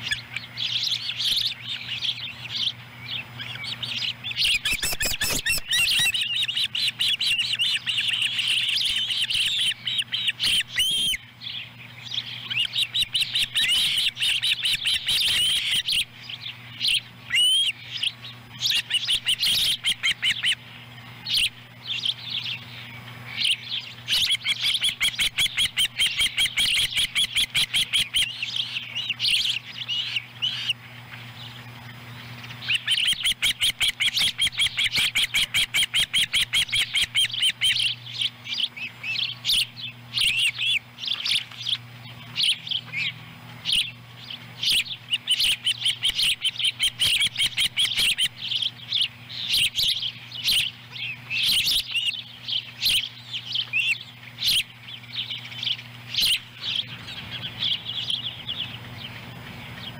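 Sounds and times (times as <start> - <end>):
ospreys chirping: 0.0 - 59.9.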